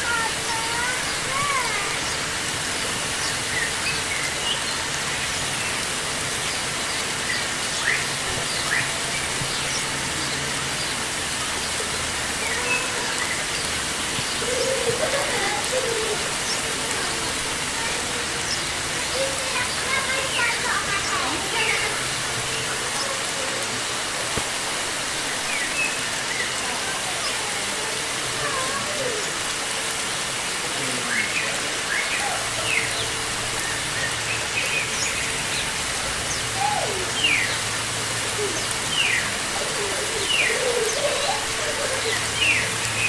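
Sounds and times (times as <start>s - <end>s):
running water hiss: 0.0s - 43.0s
small birds chirping: 0.1s - 43.0s.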